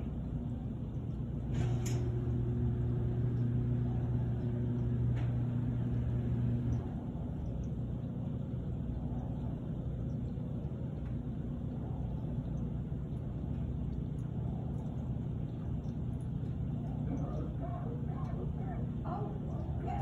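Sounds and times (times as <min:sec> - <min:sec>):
low machine hum: 0:00.0 - 0:20.0.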